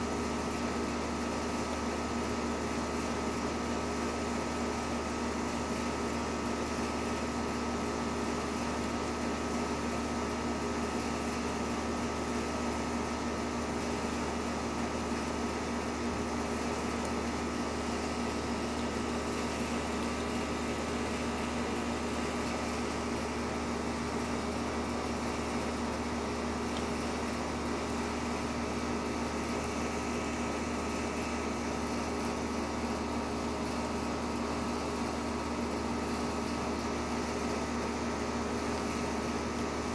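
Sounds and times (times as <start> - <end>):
machine hum: 10.1 - 39.3.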